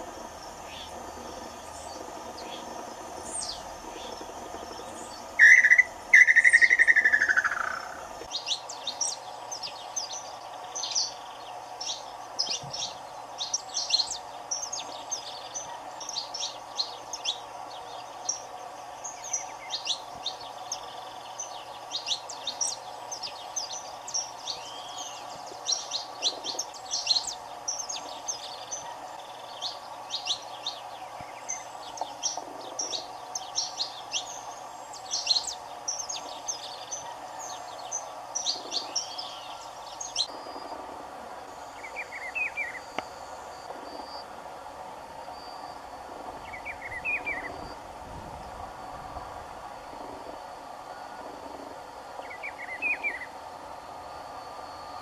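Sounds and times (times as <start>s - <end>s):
low background hum: 0.0s - 55.0s
finch chirping and trilling: 0.6s - 40.3s.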